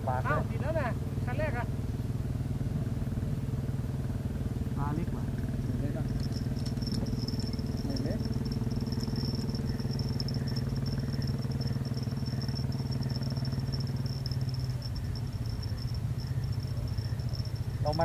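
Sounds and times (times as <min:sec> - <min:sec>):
engine idling: 0:00.0 - 0:18.0
high-pitched whine: 0:05.9 - 0:18.0.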